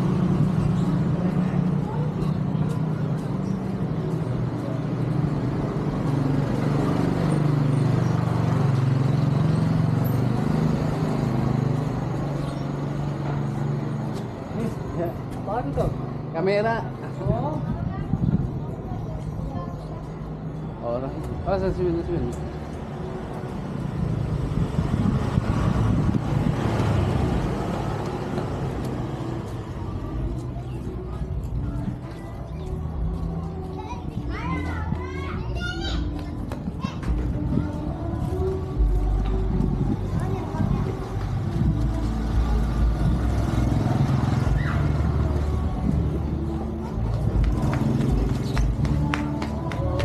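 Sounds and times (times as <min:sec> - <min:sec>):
motor vehicle passing: 0:00.0 - 0:17.8, 0:22.3 - 0:33.2, 0:39.2 - 0:50.0.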